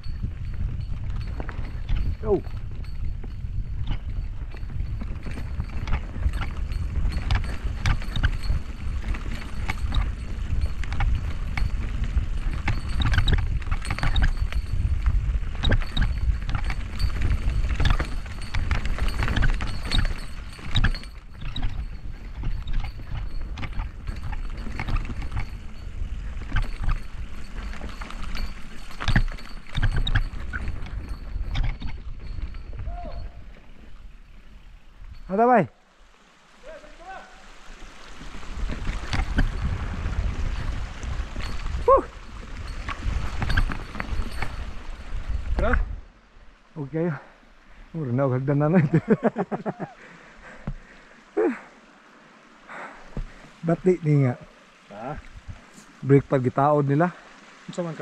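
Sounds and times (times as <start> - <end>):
bike tyres on dirt: 0.0 - 35.4, 36.4 - 46.1
bike chain and frame rattling: 0.0 - 35.7, 38.3 - 46.0, 46.8 - 51.9.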